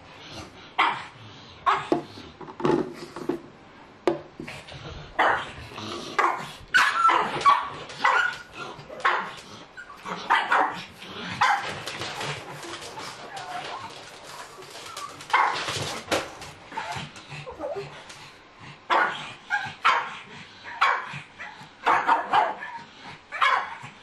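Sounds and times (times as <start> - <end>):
dogs barking and yipping: 6.2 - 17.8, 18.9 - 23.9.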